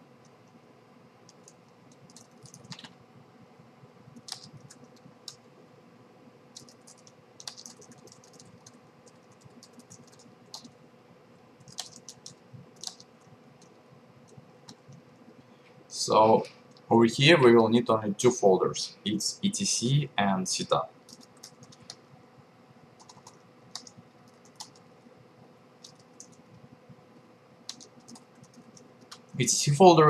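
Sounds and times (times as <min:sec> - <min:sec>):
typing on computer keyboard: 0:01.3 - 0:03.0, 0:04.2 - 0:05.4, 0:06.5 - 0:10.8, 0:11.6 - 0:15.0, 0:21.1 - 0:22.0, 0:23.0 - 0:24.9, 0:25.8 - 0:26.4, 0:27.7 - 0:29.4.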